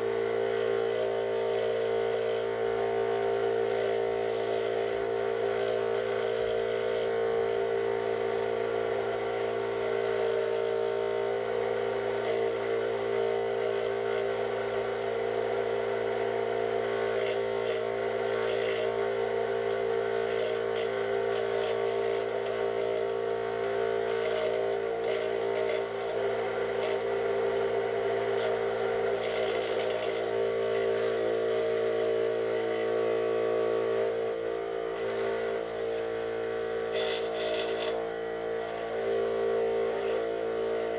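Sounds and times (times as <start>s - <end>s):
scroll saw cutting plywood: 24.0s - 31.2s, 35.3s - 39.0s.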